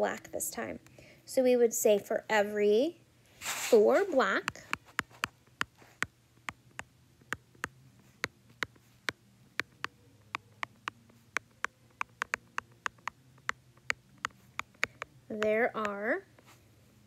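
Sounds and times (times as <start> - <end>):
faint low hum: 0.0 - 17.0
stylus clicking on tablet screen: 4.4 - 16.1.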